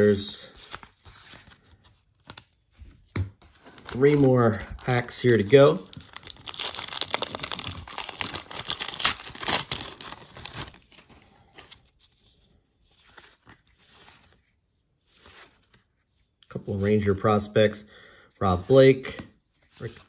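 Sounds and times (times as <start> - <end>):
cards rustling: 0.0 - 17.2, 18.3 - 20.0
paper wrapper tearing and crinkling: 3.6 - 11.9.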